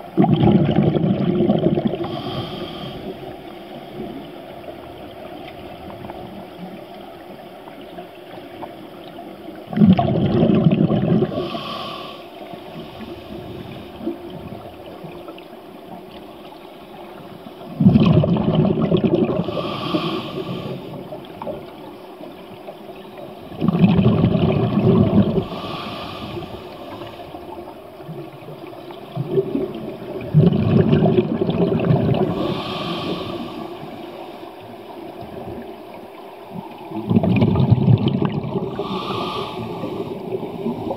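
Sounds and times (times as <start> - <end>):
exhaled bubbles rumbling underwater: 0.0 - 40.9
regulator hiss on inhale: 2.0 - 3.9, 11.3 - 14.0, 19.4 - 21.0, 25.4 - 27.6, 32.2 - 34.7, 38.7 - 40.9.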